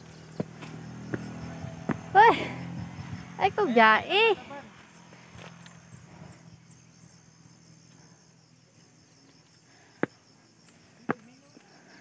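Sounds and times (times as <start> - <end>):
footsteps on concrete steps: 0.0 - 2.4
insects chirping: 0.0 - 12.0.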